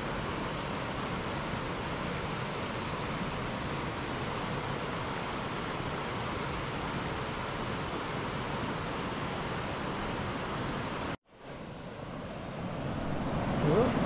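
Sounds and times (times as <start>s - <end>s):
stream water rushing over rocks: 0.0s - 11.2s.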